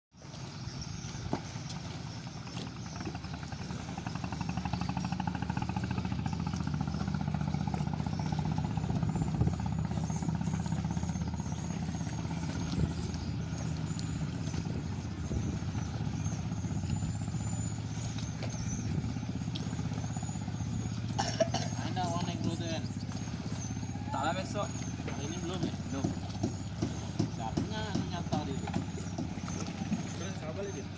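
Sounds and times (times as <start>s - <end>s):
small engine puttering: 2.7s - 30.9s.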